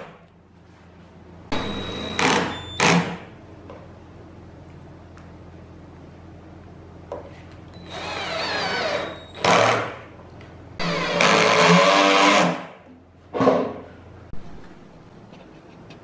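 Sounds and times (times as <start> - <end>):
cordless drill driving screws: 7.8 - 9.8.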